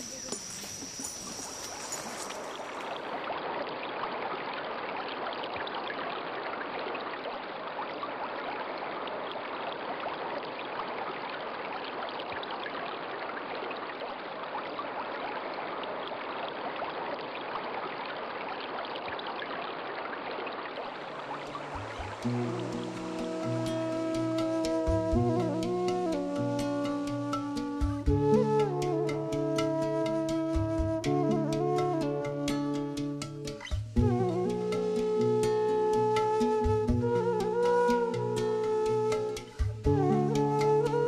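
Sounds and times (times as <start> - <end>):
fast-flowing river rushing: 19.6 - 27.8.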